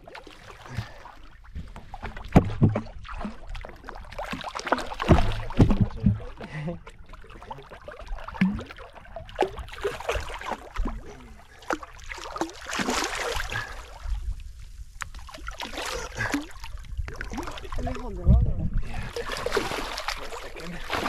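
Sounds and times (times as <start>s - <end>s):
small knocks and splashes: 0.0s - 13.7s, 19.2s - 21.0s
water lapping against boat hull: 0.0s - 21.0s.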